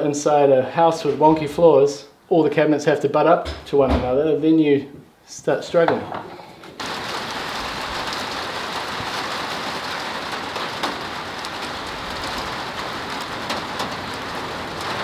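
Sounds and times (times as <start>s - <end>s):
rain splashing on wet paving: 6.8s - 15.0s.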